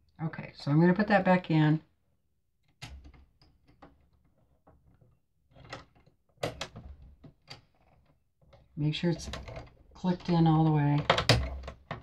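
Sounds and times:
bobbin case clicks and knocks: 5.5s - 8.1s, 9.2s - 12.0s.

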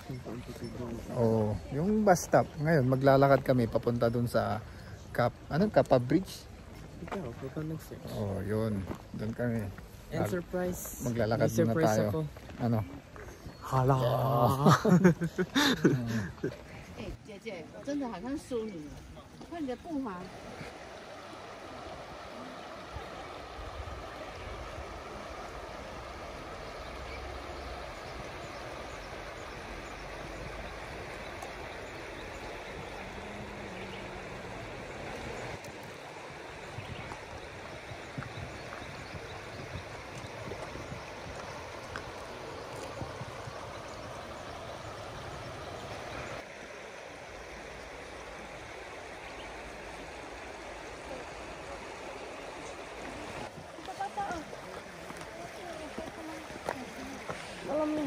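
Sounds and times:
flowing river water: 0.0s - 58.0s.

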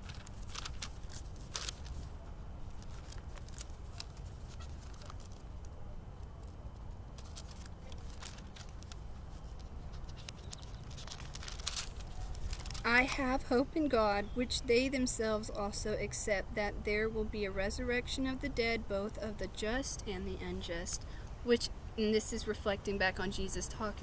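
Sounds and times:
pages turning and rustling: 0.0s - 13.3s.

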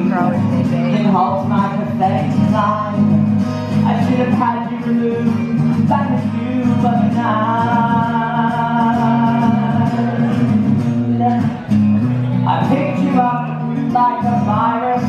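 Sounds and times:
guitar accompaniment: 0.0s - 15.0s
man singing: 0.0s - 15.0s.

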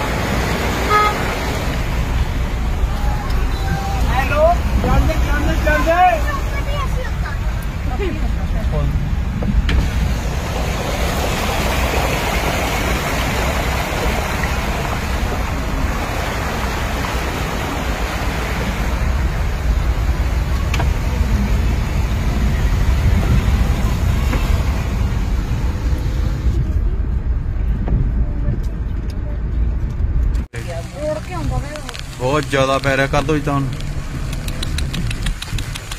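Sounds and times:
heavy rain: 0.0s - 27.1s, 30.5s - 35.9s
car engine rumble: 0.0s - 35.9s
road noise: 0.0s - 35.9s.

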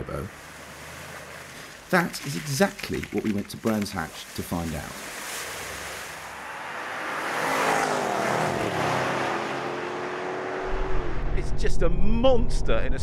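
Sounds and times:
car engine passing at speed: 0.3s - 1.9s, 5.1s - 11.4s.

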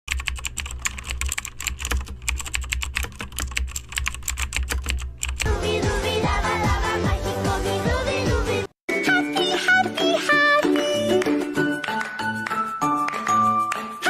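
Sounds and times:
rapid typing on keyboard: 0.1s - 5.5s
music: 5.4s - 14.0s.

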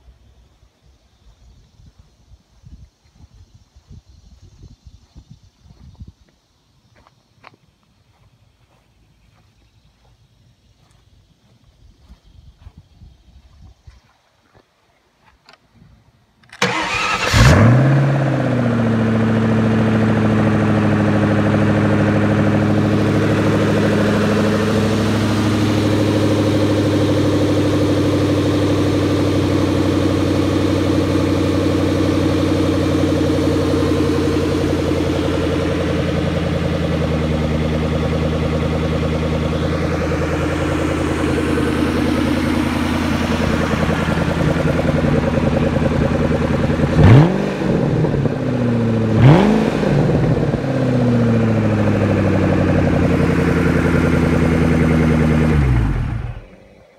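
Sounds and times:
car engine starting and idling: 16.4s - 56.9s.

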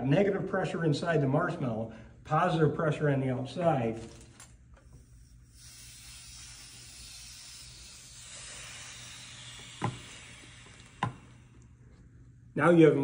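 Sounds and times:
air hissing into vacuum jar: 4.8s - 11.7s.

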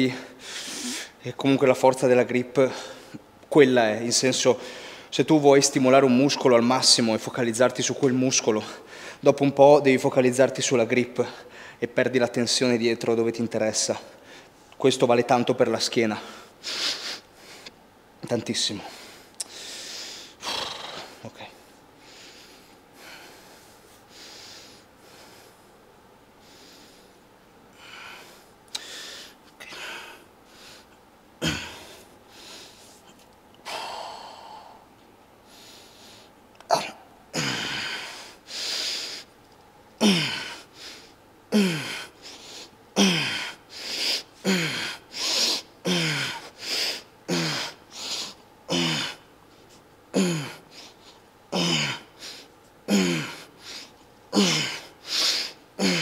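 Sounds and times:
man breathing forcefully and grunting: 18.9s - 21.2s, 27.8s - 32.8s, 33.6s - 34.9s, 36.8s - 39.3s, 40.0s - 49.3s, 50.2s - 56.0s.

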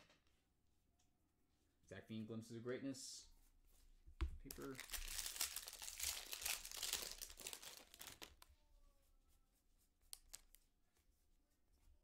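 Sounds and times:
foil wrapper crinkling: 4.5s - 8.4s.

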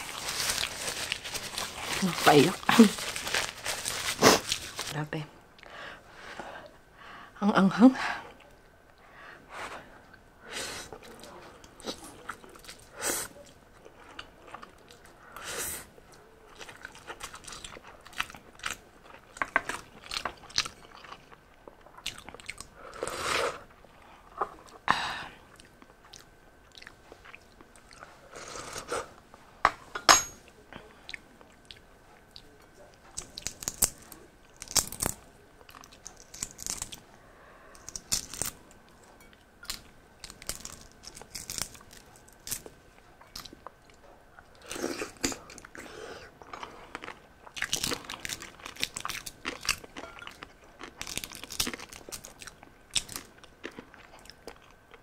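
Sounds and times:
eggshell cracking and peeling: 33.2s - 35.2s, 35.8s - 37.0s, 37.8s - 38.6s.

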